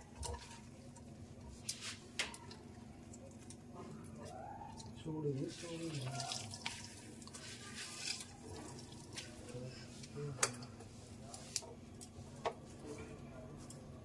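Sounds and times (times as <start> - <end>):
water squishing and dripping: 0.0 - 9.6.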